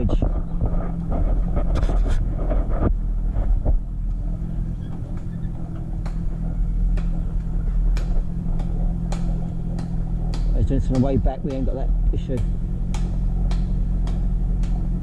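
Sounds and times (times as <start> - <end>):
outboard motor running: 0.0 - 15.0
sharp knocks: 4.7 - 15.0.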